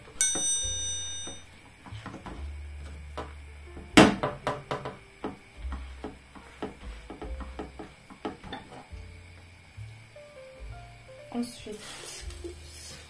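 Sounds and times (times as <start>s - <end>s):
frying pan knocking on stove grate: 0.2s - 1.5s, 3.2s - 8.8s.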